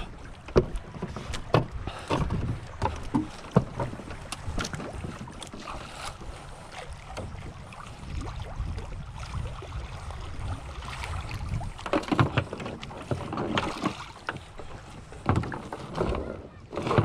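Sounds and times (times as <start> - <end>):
water splashing: 0.0 - 17.0
wind: 0.0 - 17.0
knocks on wooden canoe hull: 0.5 - 4.0.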